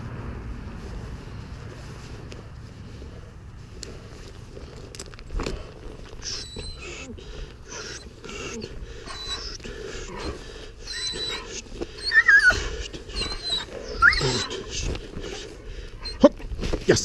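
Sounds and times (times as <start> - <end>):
paws scuffling on asphalt: 0.0 - 17.0
dog whining: 6.1 - 16.5.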